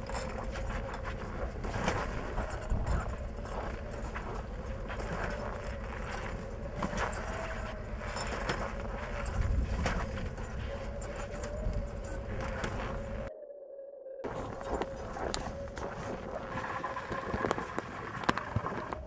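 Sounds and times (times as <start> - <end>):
low wind rumble: 0.0 - 13.3, 14.2 - 19.0
steady hum: 0.0 - 13.3.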